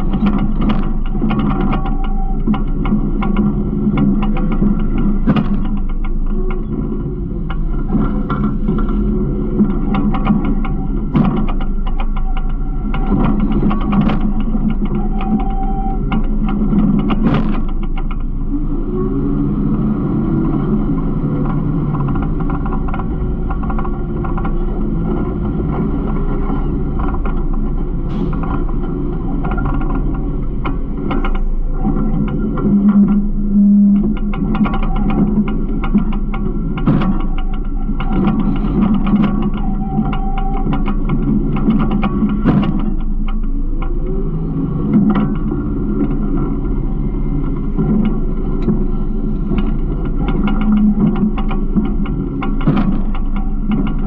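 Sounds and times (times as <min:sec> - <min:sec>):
faint clicks and rattles: 0:00.0 - 0:18.6, 0:19.8 - 0:54.0
garbage truck engine running: 0:00.0 - 0:54.0.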